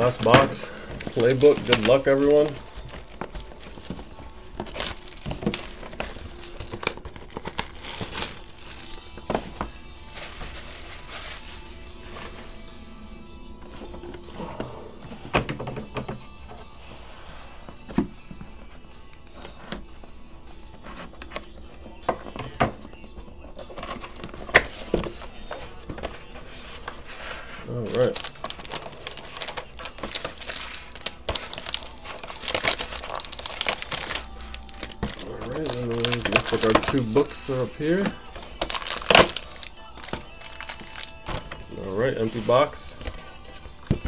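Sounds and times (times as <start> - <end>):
plastic shrink wrap crinkling: 0.0 - 11.8, 25.5 - 43.2
cardboard rustling: 0.0 - 12.5, 22.2 - 44.0.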